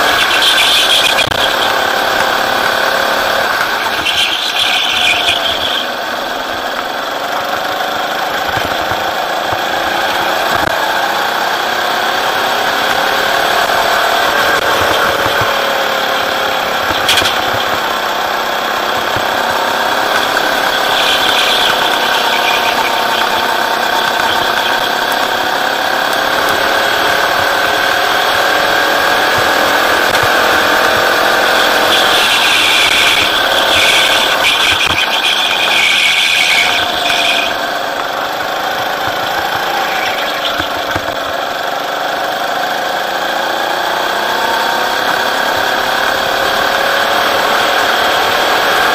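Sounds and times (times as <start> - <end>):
high hissing squeal: 0.0 - 6.0, 14.5 - 29.6, 30.6 - 40.9
go-kart engine revving: 0.0 - 48.9.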